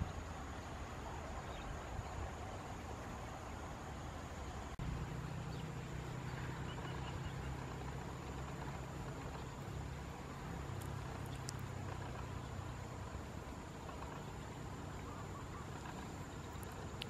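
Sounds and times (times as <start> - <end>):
faint high ticks: 10.4 - 15.1, 15.7 - 17.0.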